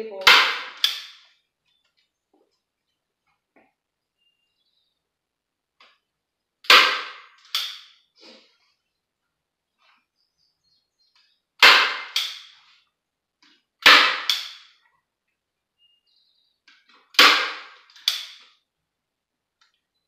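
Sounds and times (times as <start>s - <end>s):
staple gun snapping: 18.0s - 18.4s.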